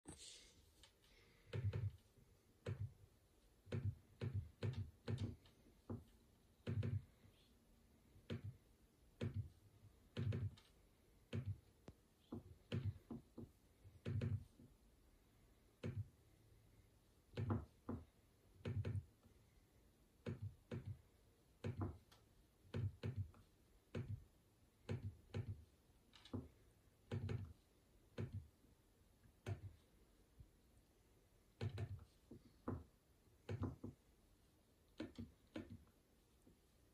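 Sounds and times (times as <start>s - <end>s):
computer mouse clicking: 34.9s - 35.9s.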